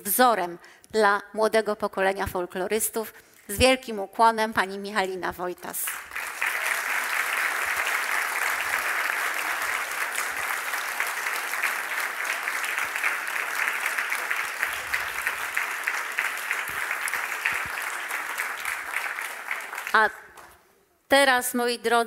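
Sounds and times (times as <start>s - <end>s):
audience applauding: 5.8s - 20.6s.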